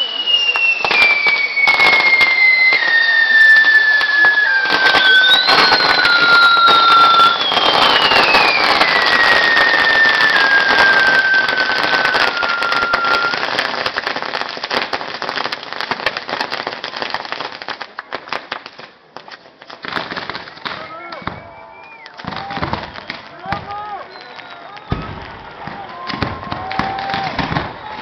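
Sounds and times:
firework whistle: 0.0 - 14.1, 20.7 - 28.0
fireworks crackling: 0.0 - 28.0.

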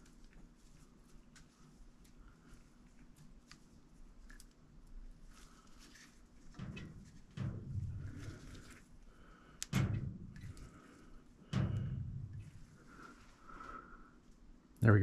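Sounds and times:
dull thumps: 6.5 - 8.8, 9.7 - 13.1.

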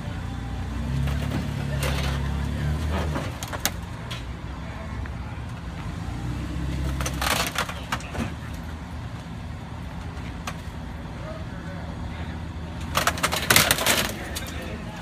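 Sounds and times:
car bodies and glass crunching: 2.9 - 3.8, 6.9 - 8.4, 12.8 - 14.7.

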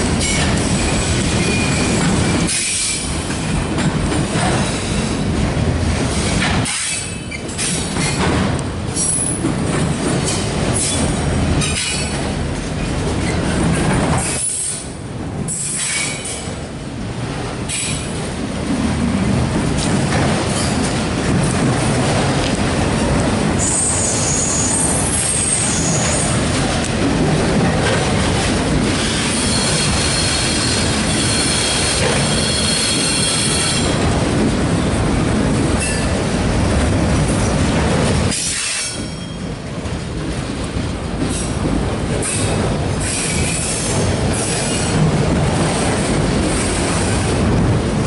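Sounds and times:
freight cars rumbling on rails: 0.0 - 48.0
high wheel squeal: 23.6 - 26.3, 29.0 - 34.0.

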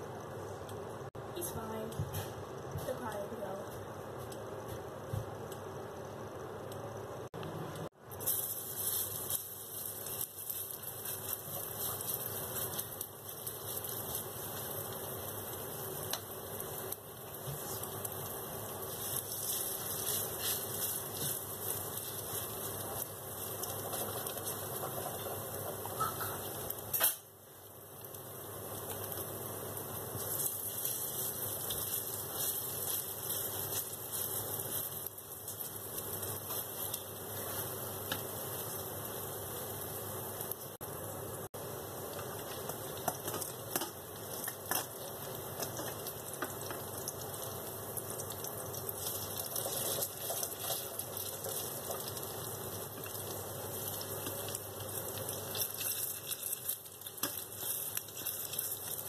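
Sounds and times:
fritters sizzling in hot oil: 7.9 - 59.0.

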